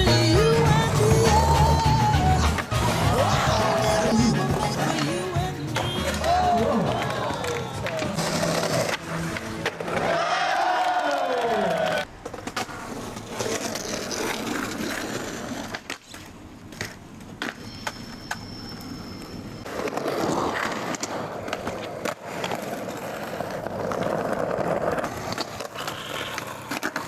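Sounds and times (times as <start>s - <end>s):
skateboard wheels rolling on concrete: 0.0s - 27.0s
skateboard clacking on ground: 3.7s - 10.2s, 10.9s - 27.0s.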